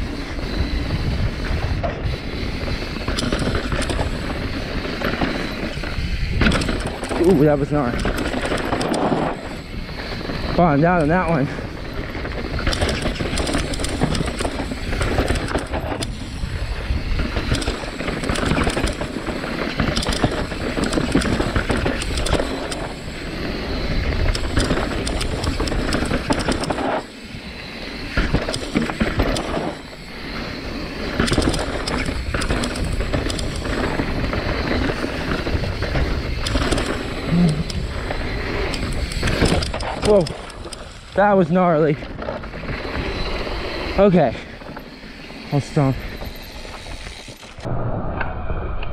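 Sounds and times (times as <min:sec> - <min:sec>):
bike rattling and clattering: 0:00.0 - 0:47.7
bike tyres grinding over rock: 0:00.0 - 0:47.7
wind rushing over microphone: 0:00.0 - 0:48.9.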